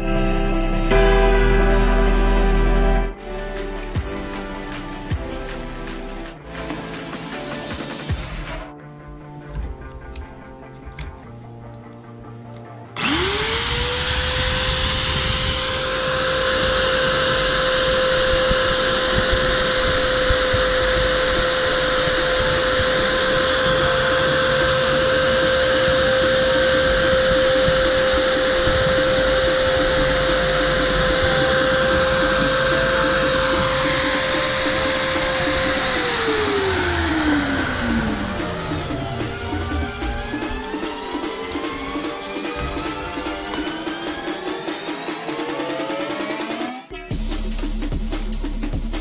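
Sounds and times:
electric drill spinning: 13.0 - 46.8.

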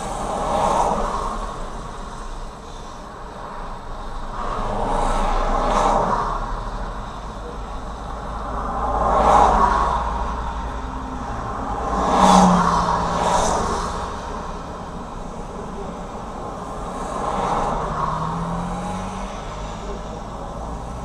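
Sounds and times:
heavy lorry passing: 0.0 - 21.0
vehicles passing on highway: 0.0 - 21.0.

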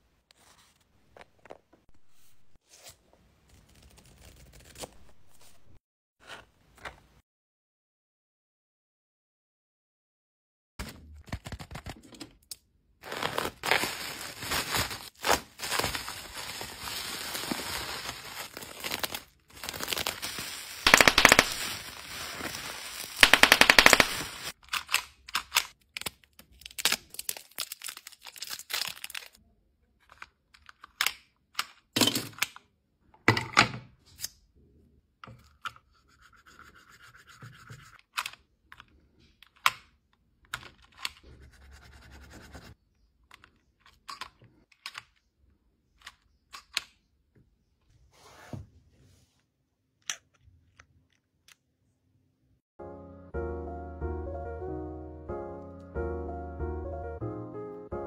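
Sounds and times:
plastic bag crinkling and tearing: 13.0 - 24.6, 25.9 - 29.4.

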